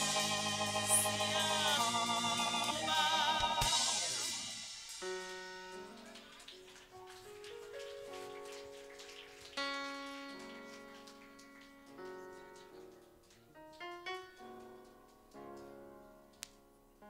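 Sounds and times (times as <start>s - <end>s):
piano chords: 0.0s - 17.0s.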